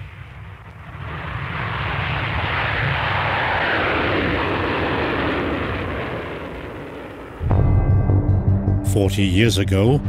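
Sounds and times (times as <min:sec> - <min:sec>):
jet aircraft engine rushing: 0:00.0 - 0:07.5
low rumble: 0:00.1 - 0:10.0.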